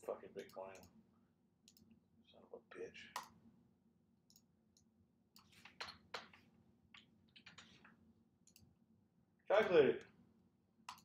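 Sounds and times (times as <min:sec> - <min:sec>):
computer mouse clicks: 0:01.6 - 0:01.9, 0:04.3 - 0:06.0, 0:07.0 - 0:08.7.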